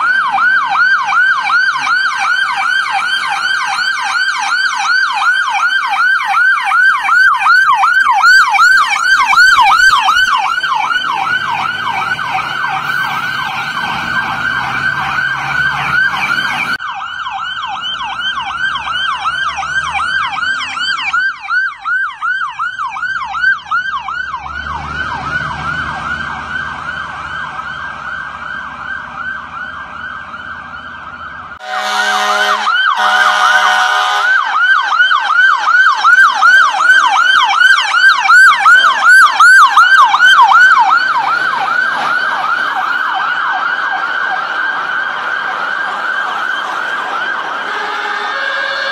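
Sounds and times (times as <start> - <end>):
diesel engine rumble: 0.0 - 32.0
fire engine sirens yelping: 0.0 - 48.9
horn blasts: 31.6 - 34.4, 47.6 - 48.9.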